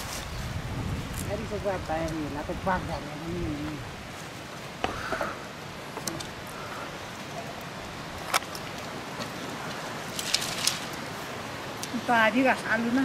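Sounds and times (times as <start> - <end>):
steady outdoor hiss: 0.0 - 13.0
firewood sticks clicking and snapping: 7.3 - 11.1.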